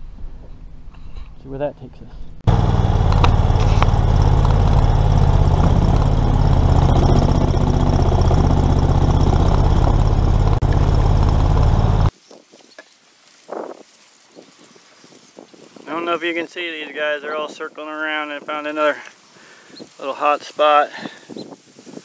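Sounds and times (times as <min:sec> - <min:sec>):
boat motor running: 0:02.4 - 0:12.1.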